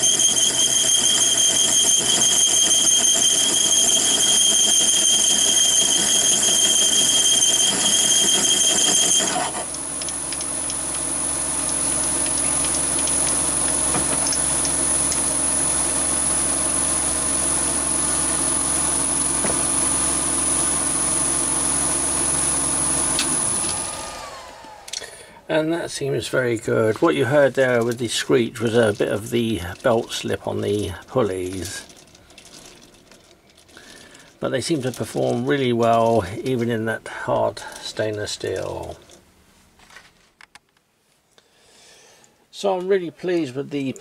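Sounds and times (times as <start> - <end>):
drive belt screeching: 0.0 - 25.0
lathe running: 0.0 - 25.0.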